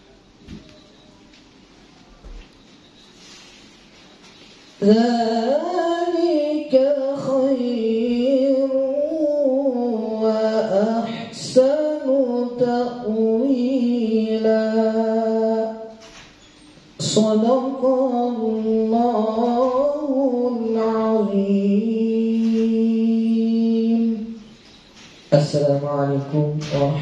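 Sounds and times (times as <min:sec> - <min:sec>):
man chanting melodically: 0:04.8 - 0:16.0, 0:17.0 - 0:24.5, 0:25.3 - 0:27.0.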